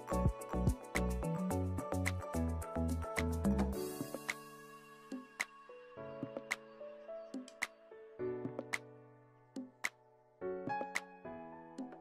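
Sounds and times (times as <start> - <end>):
instrumental music with held chords: 0.0 - 6.7.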